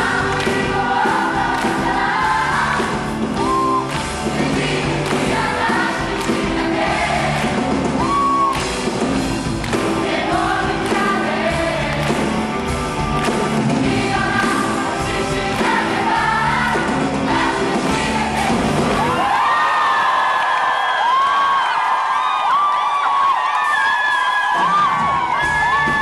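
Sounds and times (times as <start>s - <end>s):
group singing rock song: 0.0s - 8.1s, 9.3s - 19.4s
live band playing: 0.0s - 19.2s.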